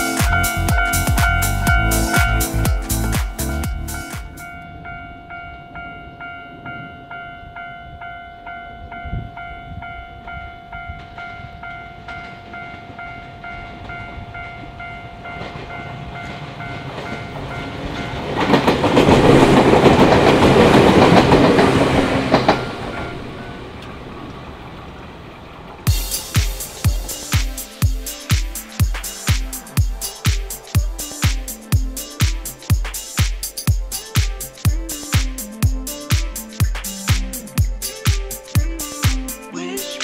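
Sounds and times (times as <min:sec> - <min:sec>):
level-crossing warning bell: 0:00.0 - 0:23.8, 0:25.9 - 0:39.8
train wheels clattering on rails: 0:10.2 - 0:24.0.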